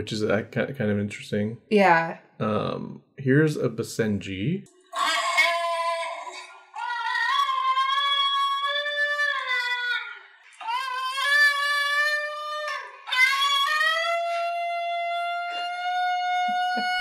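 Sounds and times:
dog yodeling howls: 5.0 - 17.0.

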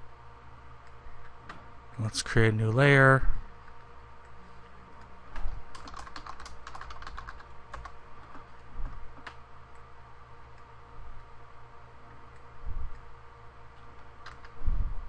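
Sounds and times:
faint steady hum: 0.0 - 15.0
typing on computer keyboard: 5.4 - 8.4, 14.2 - 14.6.

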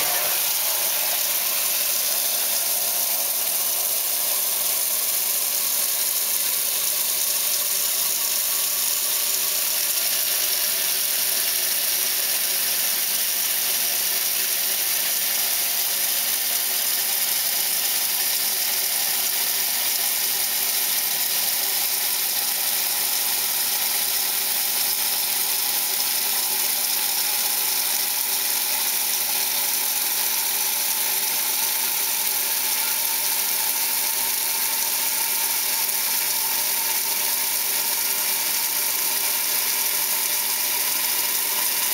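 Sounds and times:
water churning in tub: 0.0 - 12.2
washing machine drive running: 0.0 - 41.9.

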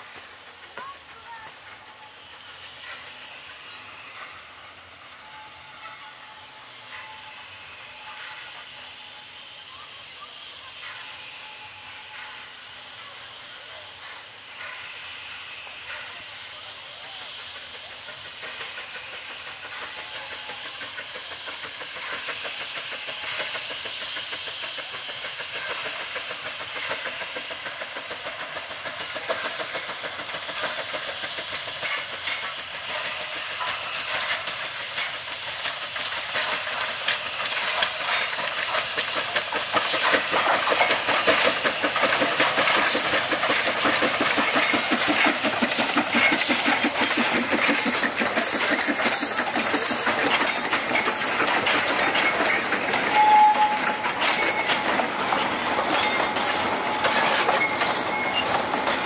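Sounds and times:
steam locomotive hissing: 0.0 - 59.0
wheels clicking over rail joints: 15.9 - 59.0
high squeal: 51.0 - 58.9.

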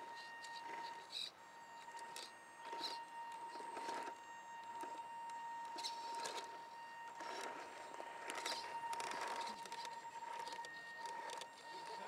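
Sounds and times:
high-pitched motor whine: 0.0 - 12.0.

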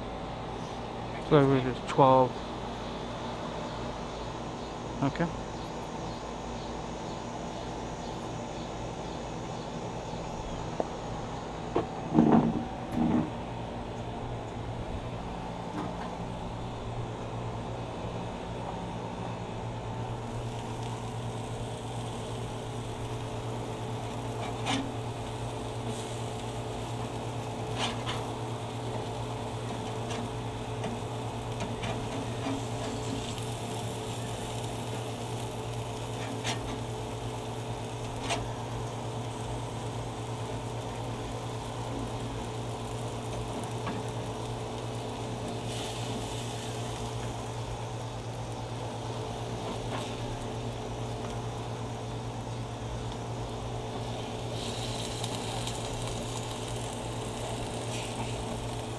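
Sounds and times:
burgers sizzling on a grill: 0.0 - 58.9
steady low hum: 0.0 - 58.9.

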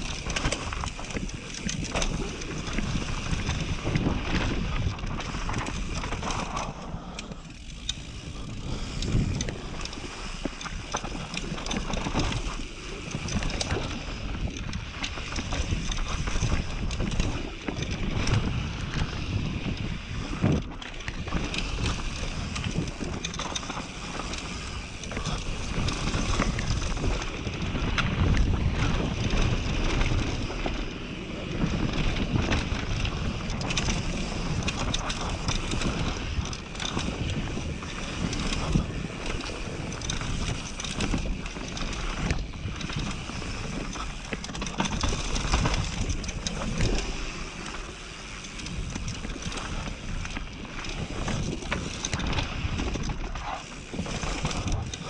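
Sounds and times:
bike clattering over bumps: 0.0 - 18.5, 20.9 - 55.0
wind rushing over microphone: 0.0 - 55.0
tyres rolling over dirt and rock: 31.6 - 55.0.

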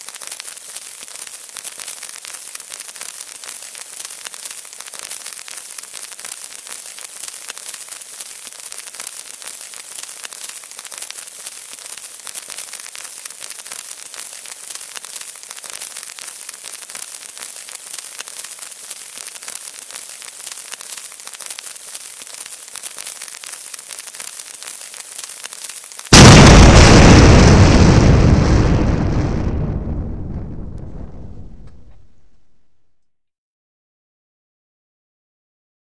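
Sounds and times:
burning fuse hissing: 0.0 - 28.8
loud explosion: 26.1 - 32.9.

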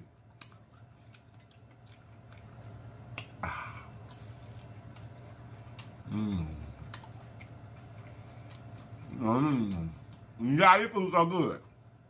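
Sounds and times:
low steady hum: 0.0 - 12.0
mouth clicks and smacks eating: 0.3 - 3.4, 4.0 - 10.3.

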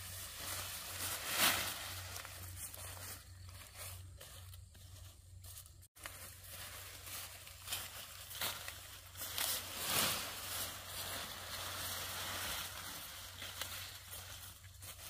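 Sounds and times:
leaves crackling and tearing: 6.0 - 15.0.

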